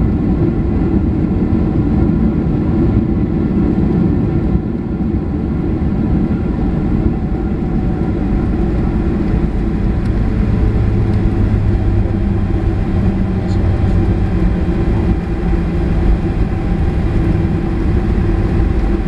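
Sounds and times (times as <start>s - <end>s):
aircraft cabin rumble: 0.0s - 19.0s
low steady hum: 0.0s - 19.0s.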